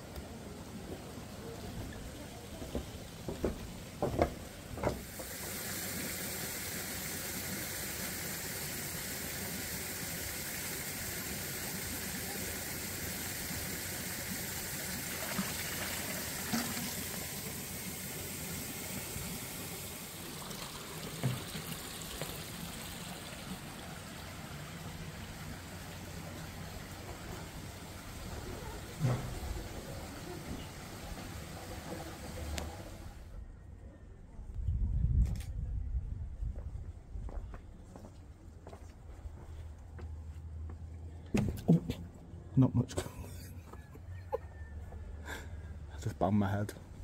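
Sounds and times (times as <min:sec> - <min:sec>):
water rushing into pond: 0:04.8 - 0:33.2.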